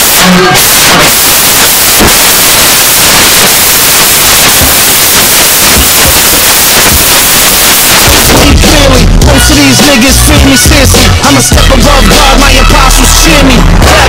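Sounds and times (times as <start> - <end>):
loud static hiss: 0.0 - 14.0.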